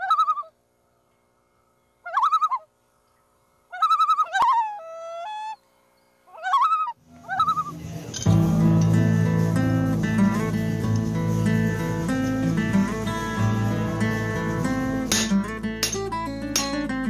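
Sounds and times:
bird calling in pulsing bouts: 0.0 - 0.6, 1.6 - 7.8
music: 7.3 - 17.0.

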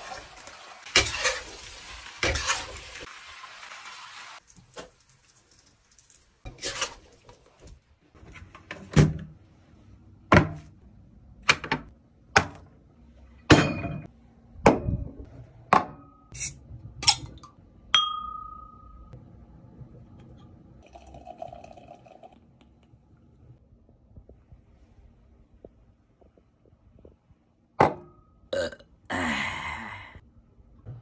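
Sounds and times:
dishes knocking and clinking: 13.5 - 14.1
glass clink ringing: 18.0 - 19.2.

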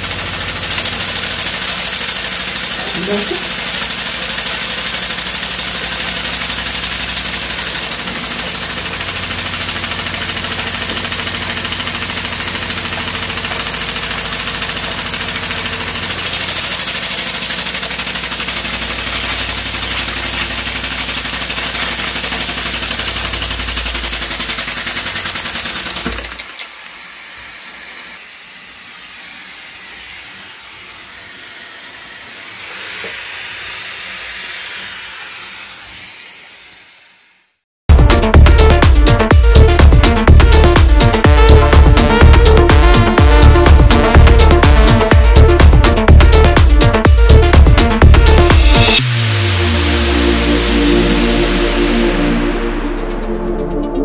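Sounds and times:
flywheel whirring: 0.0 - 27.0
steam hissing: 0.0 - 37.6.

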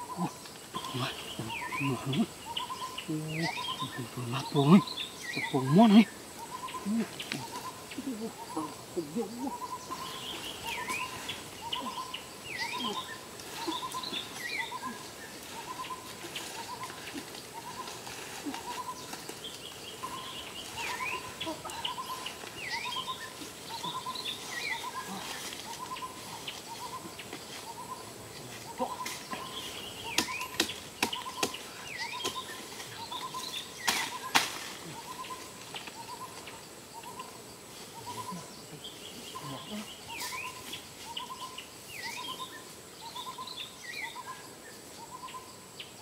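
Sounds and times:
birds chirping and whistling: 0.0 - 36.4, 38.0 - 45.5
dry brush snapping and crackling: 12.6 - 27.8, 28.5 - 36.5.

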